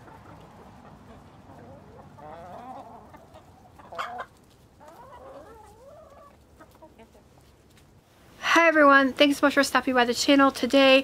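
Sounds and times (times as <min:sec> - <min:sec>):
hens clucking: 0:00.0 - 0:07.9.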